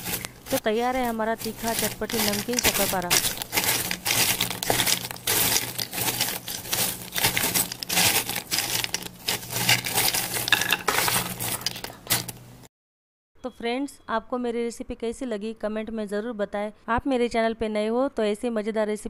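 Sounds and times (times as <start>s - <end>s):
crunchy snacks clinking in bowl: 0.0s - 12.5s.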